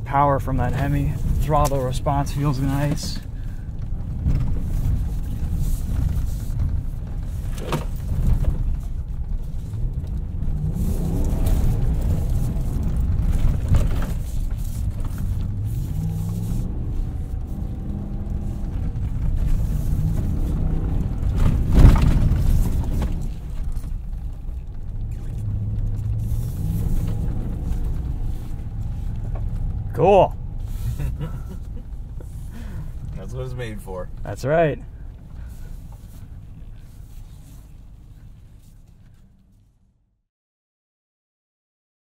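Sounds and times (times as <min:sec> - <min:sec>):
suspension and body knocking: 0:00.0 - 0:38.6
truck engine revving: 0:09.7 - 0:36.2.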